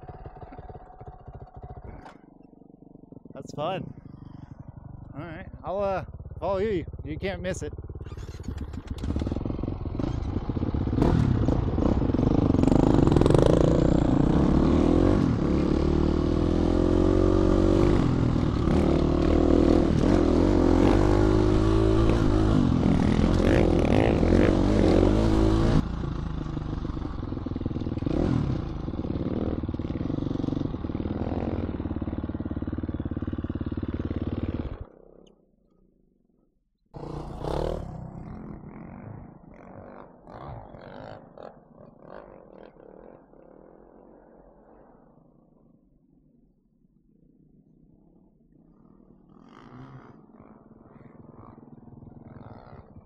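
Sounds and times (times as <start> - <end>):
dirt bike engine revving: 7.8 - 34.9, 37.0 - 38.8.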